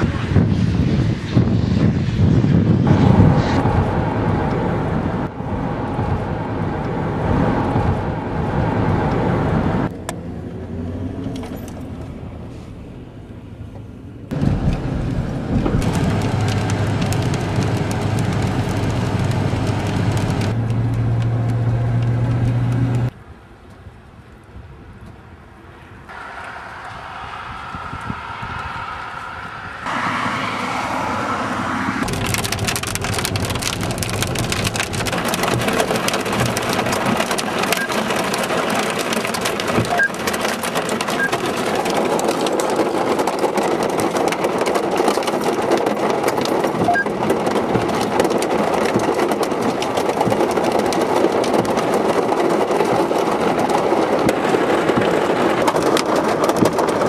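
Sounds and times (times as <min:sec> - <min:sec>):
rain and hail pelting: 0:14.3 - 0:23.1, 0:32.0 - 0:57.0.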